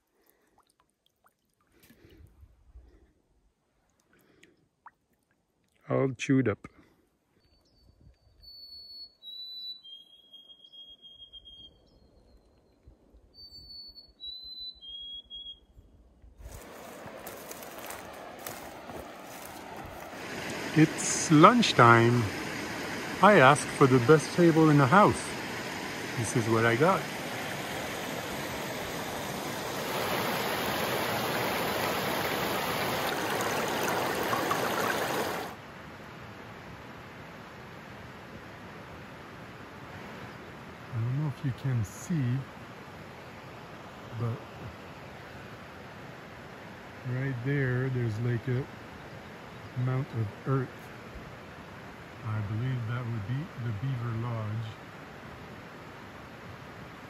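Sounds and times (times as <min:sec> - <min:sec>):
songbird whistled song: 0:07.4 - 0:16.0
stream water rushing: 0:16.5 - 0:35.8.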